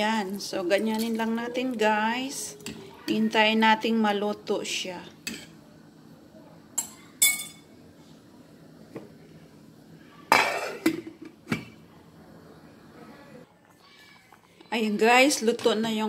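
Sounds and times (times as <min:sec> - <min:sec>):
faint steady hum: 0:00.0 - 0:16.0
metal spoon clinking against pot: 0:06.8 - 0:07.7.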